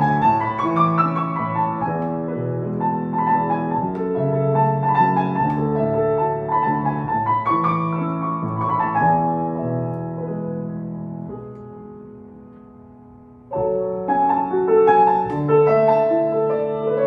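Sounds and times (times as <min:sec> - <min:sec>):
slow gentle piano music: 0:00.0 - 0:17.0.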